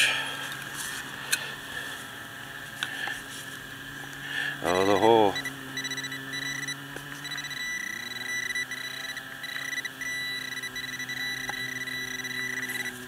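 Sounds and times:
low hum: 0.0 - 13.0
metal detector beeping: 4.7 - 13.0.

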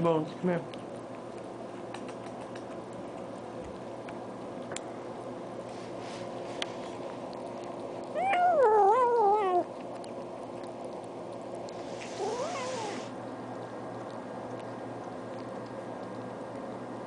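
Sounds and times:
cat meowing: 12.2 - 13.1.

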